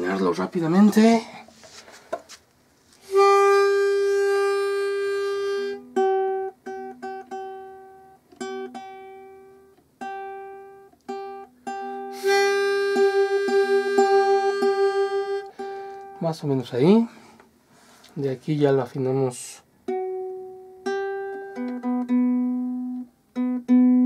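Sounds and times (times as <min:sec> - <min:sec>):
pitch pipe held note: 0:03.1 - 0:06.1, 0:11.7 - 0:16.2.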